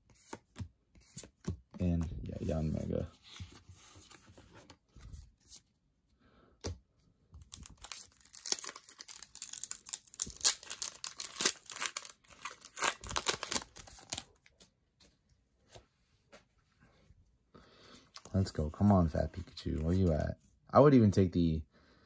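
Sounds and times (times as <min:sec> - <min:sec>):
foil wrapper tearing and crinkling: 0:07.5 - 0:14.4.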